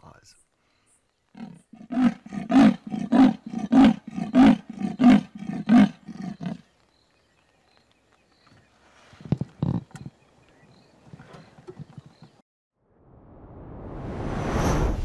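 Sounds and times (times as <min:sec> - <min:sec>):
leopard rasping call: 0:01.3 - 0:06.6.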